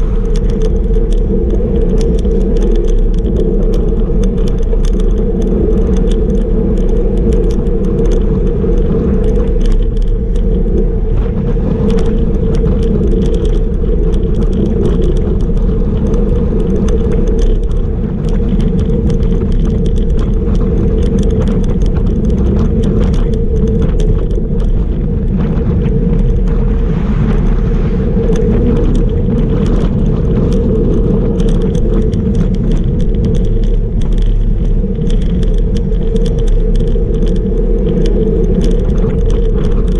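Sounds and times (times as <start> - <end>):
bike rattles: 0.0 - 39.9
bike tyres rolling on asphalt: 0.0 - 39.9
wind rush on microphone: 0.0 - 39.9.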